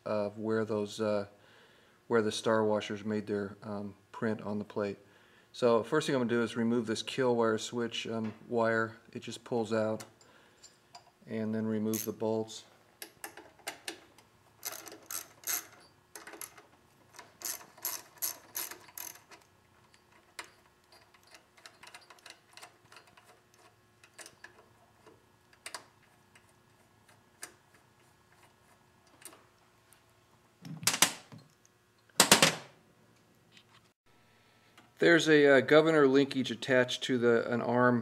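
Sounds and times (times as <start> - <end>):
socket ratchet clicking: 14.6 - 16.6.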